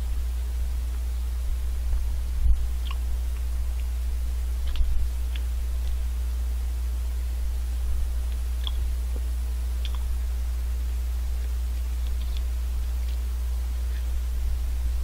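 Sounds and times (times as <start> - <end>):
steady low hum: 0.0 - 15.0
wet mouth clicks and smacks: 2.8 - 3.9, 4.6 - 5.5, 8.3 - 8.8, 9.8 - 10.1.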